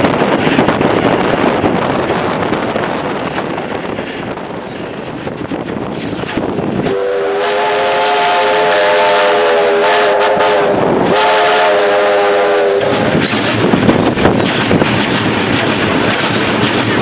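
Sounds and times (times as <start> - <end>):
train running on rails: 0.0 - 17.0
steam whistle blasts: 6.8 - 13.0.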